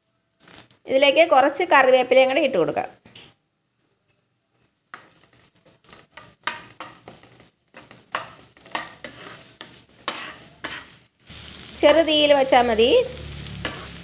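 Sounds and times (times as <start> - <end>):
spatula scraping frying pan: 4.6 - 12.0, 13.3 - 14.0
light sizzle of frying in oil: 4.6 - 14.0.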